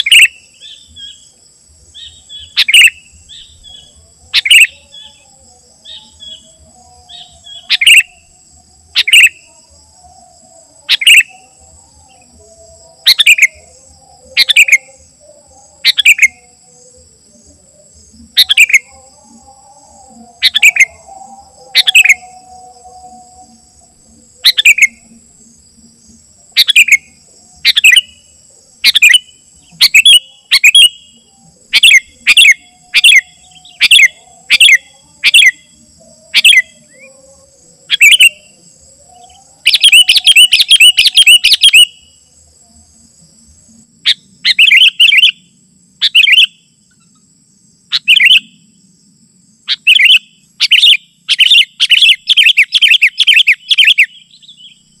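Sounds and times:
bird calling loudly: 0.0 - 1.2, 2.0 - 5.2, 5.8 - 8.3, 9.0 - 9.5, 10.9 - 11.5, 13.1 - 13.8, 18.4 - 18.9, 20.4 - 22.5, 24.4 - 25.2, 26.6 - 28.2, 28.8 - 35.7, 36.3 - 36.9, 37.9 - 38.5, 39.1 - 42.0, 44.0 - 45.4, 46.0 - 46.6, 47.9 - 48.6, 49.7 - 55.0.

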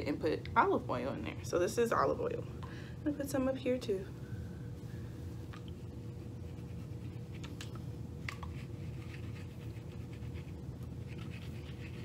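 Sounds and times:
fingertips scratching hair and scalp: 8.4 - 12.0.

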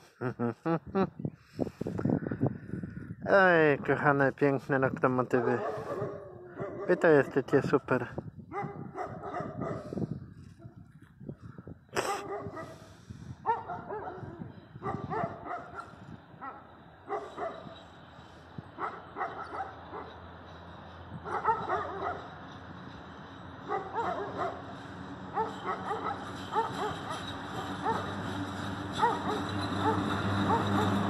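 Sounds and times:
dog barking: 5.4 - 7.4, 8.5 - 9.9, 12.0 - 12.8, 13.4 - 17.8, 18.8 - 20.2, 21.2 - 22.3, 23.7 - 24.7, 25.3 - 28.1, 29.0 - 31.0
electric locomotive hum: 13.5 - 31.0.

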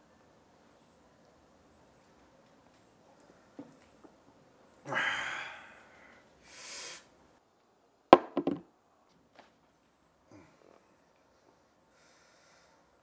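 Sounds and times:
man breathing out hard: 4.9 - 7.0
glass tumbler knocking on wooden table: 8.2 - 8.6.

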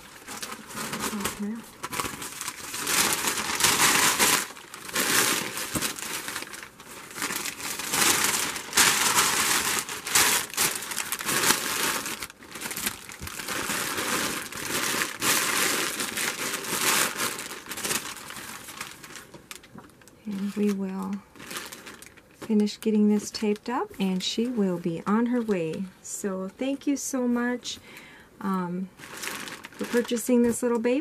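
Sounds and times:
packing paper and plastic crinkling: 0.0 - 26.0, 28.8 - 31.0.

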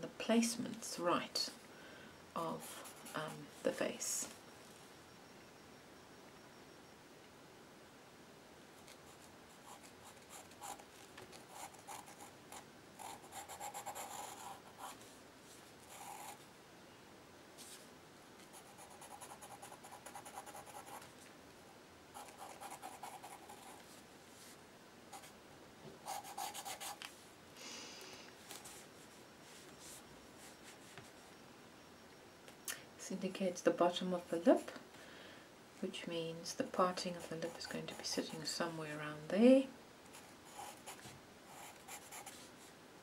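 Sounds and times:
charcoal pencil scratching paper: 13.0 - 15.0, 26.0 - 27.0, 40.2 - 42.5.

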